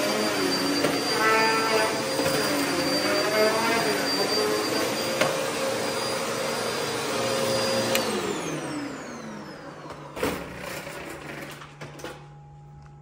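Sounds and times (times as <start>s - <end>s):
vacuum cleaner motor whine: 0.0s - 13.0s.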